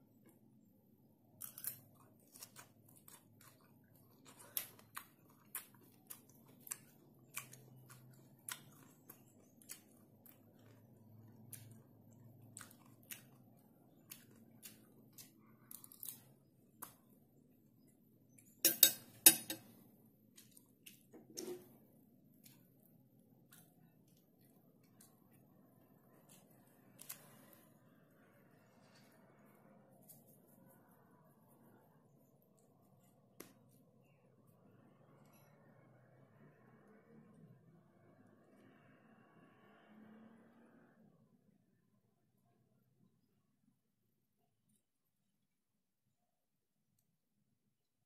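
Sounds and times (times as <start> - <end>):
chewing crunchy vegetable: 1.3 - 17.9, 22.3 - 30.9.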